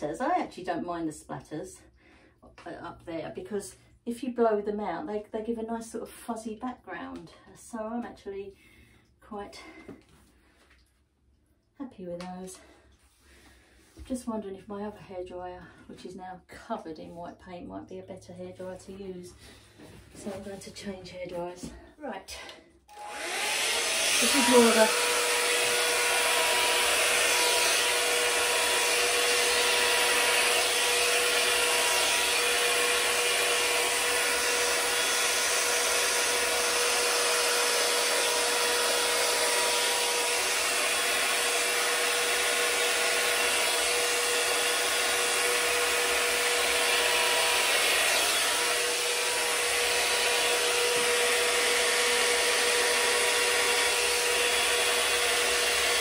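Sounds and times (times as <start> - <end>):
hair dryer running: 22.9 - 56.0.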